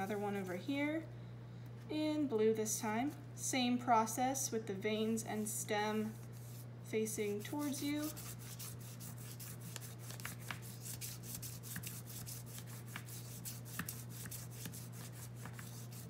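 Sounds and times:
crayon scraping on paper: 0:07.3 - 0:16.0.

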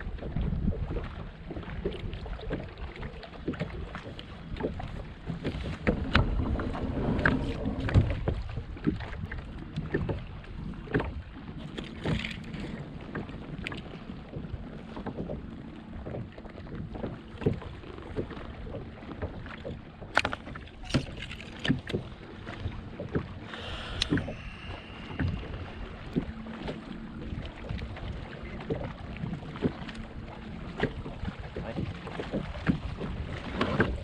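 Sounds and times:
waves lapping against hull: 0:00.0 - 0:34.0
knocks and clicks of gear: 0:20.1 - 0:22.0.

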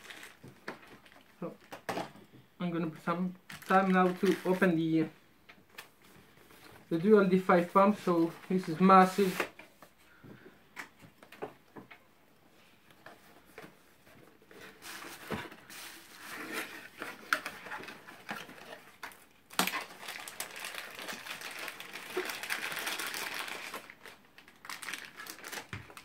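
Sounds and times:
plastic bag crinkling: 0:00.0 - 0:01.9, 0:03.4 - 0:05.0, 0:15.7 - 0:26.0.

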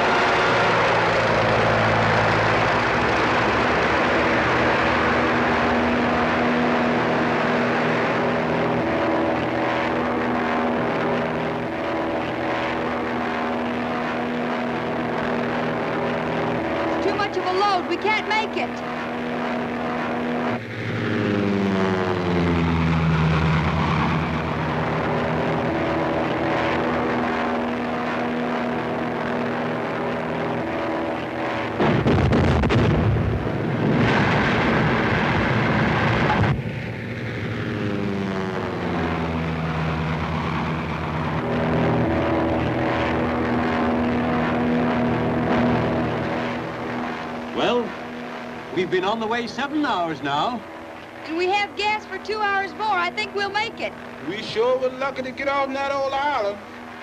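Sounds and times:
propeller airplane engine droning: 0:00.0 - 0:57.0
volcanic eruption rumble: 0:28.6 - 0:50.0.

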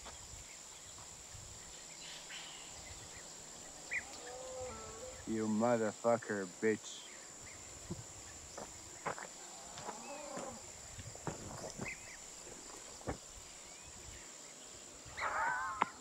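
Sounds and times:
high-pitched insect drone: 0:00.0 - 0:16.0
footsteps on gravel: 0:07.9 - 0:13.3.

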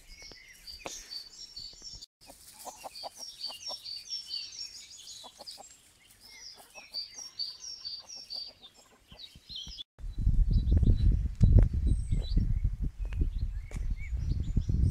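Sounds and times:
songbirds chirping and trilling: 0:00.0 - 0:14.9
chickens clucking softly: 0:02.2 - 0:03.8.

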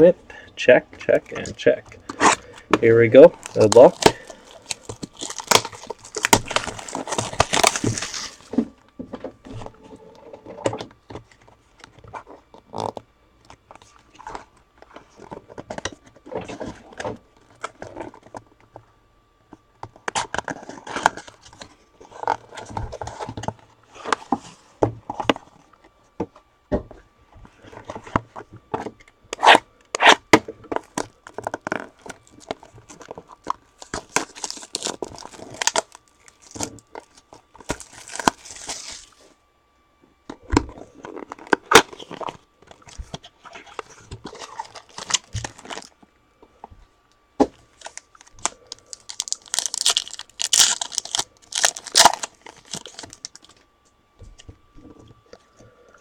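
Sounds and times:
packaging ripping and crinkling: 0:02.0 - 0:08.6, 0:29.3 - 0:39.2, 0:40.7 - 0:46.0, 0:47.5 - 0:53.6.

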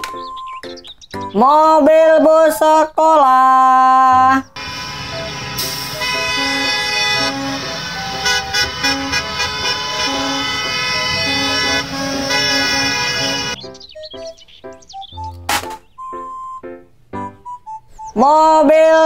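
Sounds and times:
bus engines: 0:03.6 - 0:19.0
bus horns honking: 0:04.0 - 0:14.5.

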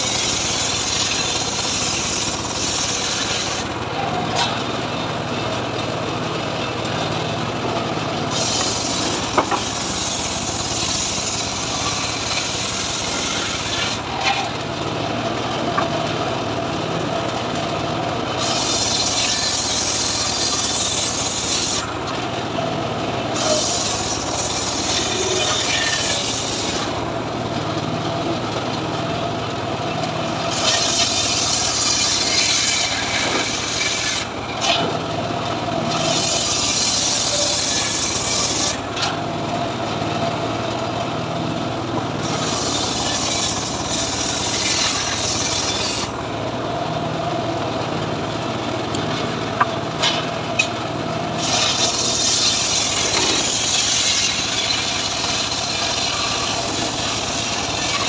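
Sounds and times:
saw blade rasping through wood: 0:00.0 - 0:04.7, 0:08.3 - 0:14.6, 0:18.4 - 0:22.0, 0:23.3 - 0:27.0, 0:30.4 - 0:35.0, 0:35.8 - 0:39.2, 0:42.2 - 0:46.2, 0:51.4 - 0:58.0
saw motor humming: 0:00.0 - 0:16.2, 0:18.2 - 0:27.4, 0:30.0 - 0:40.8, 0:41.6 - 0:49.8, 0:51.4 - 0:58.0.

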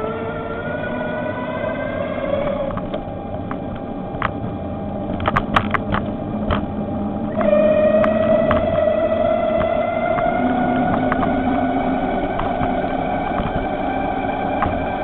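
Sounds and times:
electric bicycle motor whining: 0:00.0 - 0:15.0
low rumble of riding noise: 0:00.0 - 0:15.0
sharp clicks or rattles: 0:05.1 - 0:06.7.

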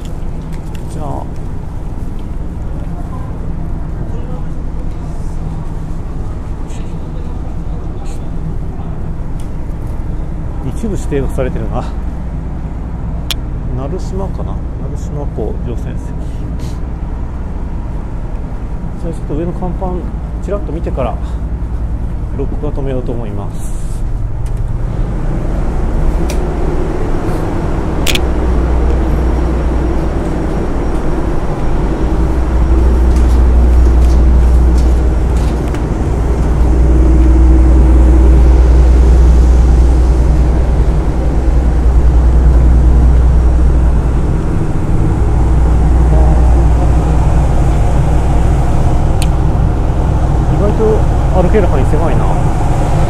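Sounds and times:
wind buffeting microphone: 0:24.0 - 0:53.0
sharp click: 0:28.0 - 0:28.3.

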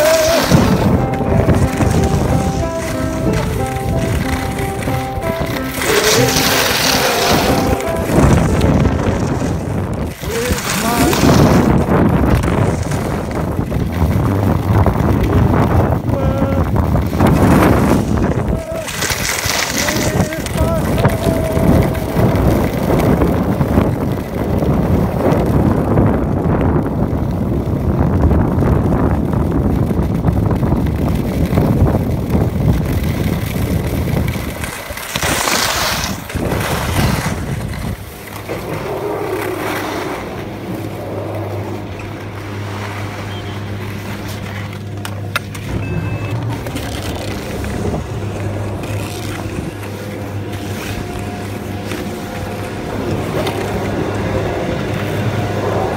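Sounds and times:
wind buffeting microphone: 0:00.0 - 0:43.8, 0:44.8 - 0:55.9
skis sliding over snow: 0:00.0 - 0:55.9
low machine hum: 0:36.4 - 0:55.9.

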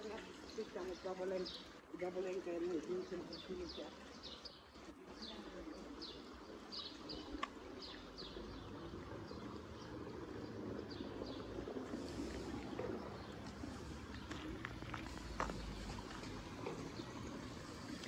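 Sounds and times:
songbirds chirping: 0:00.0 - 0:18.0.

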